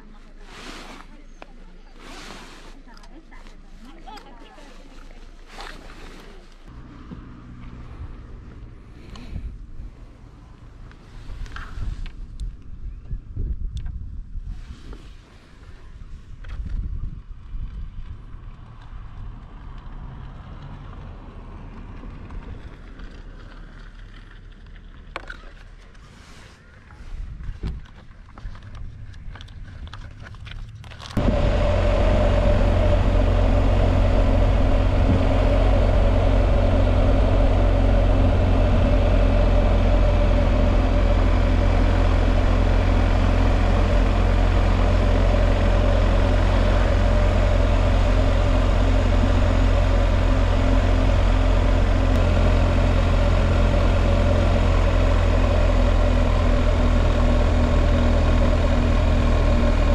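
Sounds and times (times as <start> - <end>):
wind noise: 11.1 - 19.6, 27.1 - 29.9, 31.2 - 59.9
motorcycle engine cruising: 30.7 - 59.9.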